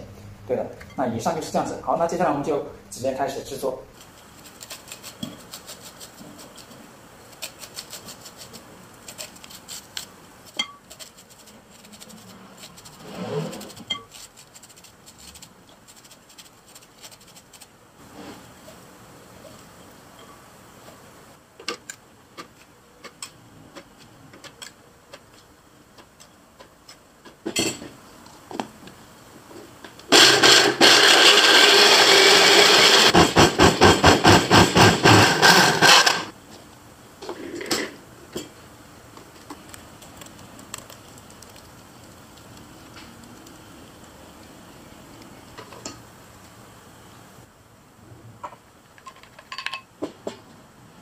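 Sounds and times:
blender grinding corn: 30.1s - 36.3s.

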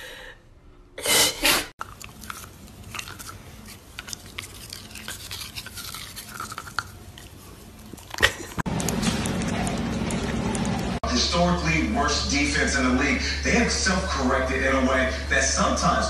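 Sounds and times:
dog chewing plastic toothbrush: 1.8s - 10.9s.

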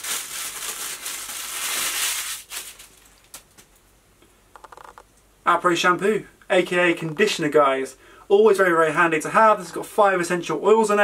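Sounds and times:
tissue paper crinkling: 0.0s - 3.5s.

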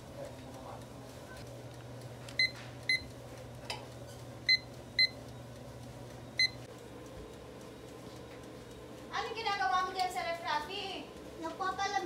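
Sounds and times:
kitchen timer beeps: 2.3s - 3.2s, 4.4s - 6.8s.

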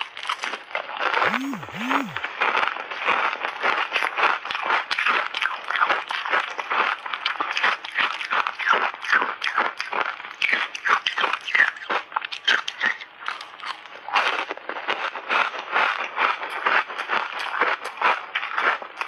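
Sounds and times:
ice chips crunching while chewed: 0.0s - 0.8s, 4.5s - 19.0s.

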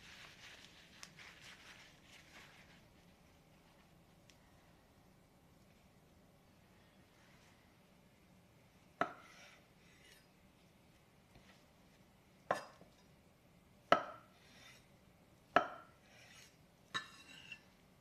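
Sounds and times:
knife scraping: 9.0s - 10.3s, 14.3s - 14.9s, 16.0s - 17.8s.

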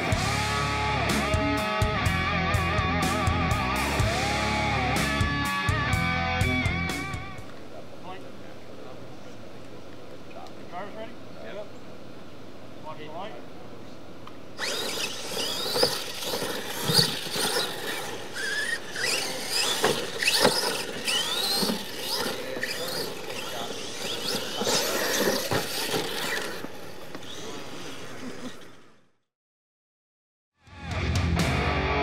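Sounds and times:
tyres scrabbling on dirt: 14.6s - 28.8s
toy truck motors whining: 14.6s - 29.2s
trucks thumping on ground: 14.7s - 27.3s.

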